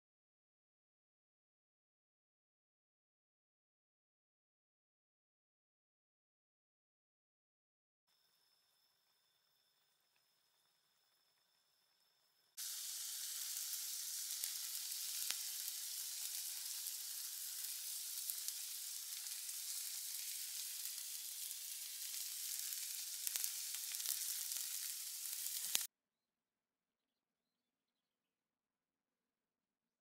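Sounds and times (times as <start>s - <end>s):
steak sizzling in a frying pan: 12.6s - 25.9s.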